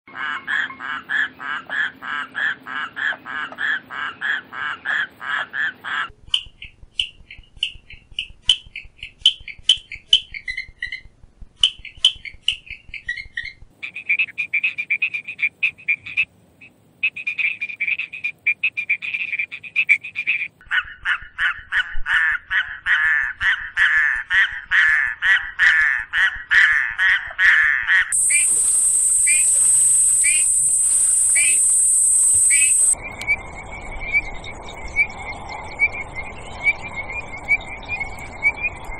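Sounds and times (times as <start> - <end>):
frog rapid trills: 28.2 - 33.0
frog sharp clicks: 28.2 - 33.0
steady high hiss: 28.2 - 33.0
toad long pulsed call: 28.2 - 33.4
chirps: 28.2 - 38.9.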